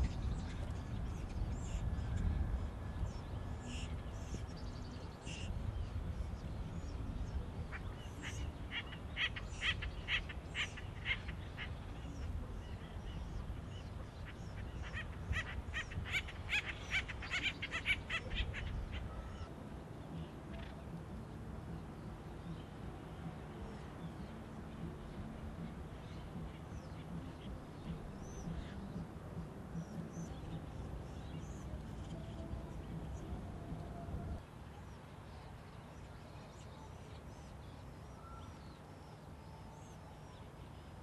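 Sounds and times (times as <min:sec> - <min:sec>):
steady low rumble: 0:00.0 - 0:39.5
woodpeckers calling: 0:14.2 - 0:19.5.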